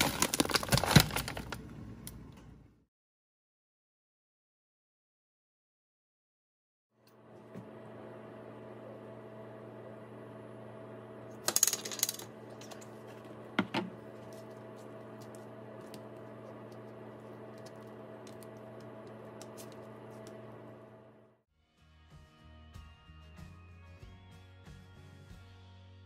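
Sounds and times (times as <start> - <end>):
steady low hum: 7.1 - 21.4.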